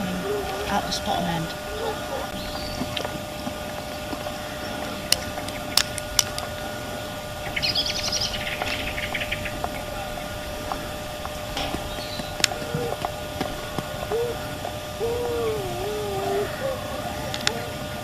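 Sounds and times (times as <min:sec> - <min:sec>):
wind rumbling on microphone: 0:00.0 - 0:18.0
small bird chattering song: 0:00.2 - 0:03.1, 0:07.4 - 0:10.5, 0:11.8 - 0:13.0.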